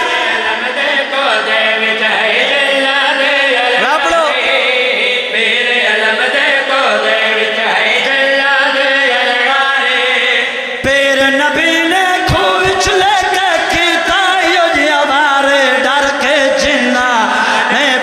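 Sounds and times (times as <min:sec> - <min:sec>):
men chanting through loudspeaker: 0:00.0 - 0:18.0.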